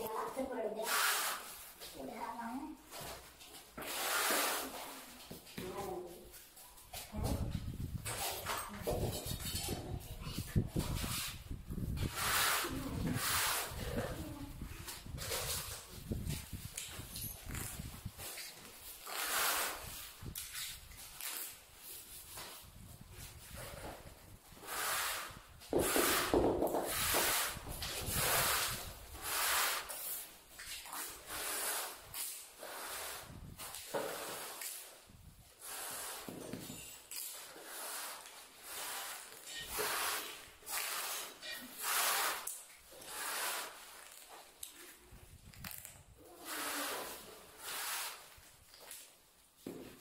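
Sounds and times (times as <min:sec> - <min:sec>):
trowel scraping tile adhesive: 0:00.8 - 0:01.7, 0:03.8 - 0:05.1, 0:10.4 - 0:14.2, 0:17.6 - 0:20.7, 0:24.6 - 0:34.9, 0:35.6 - 0:44.3, 0:45.8 - 0:48.4.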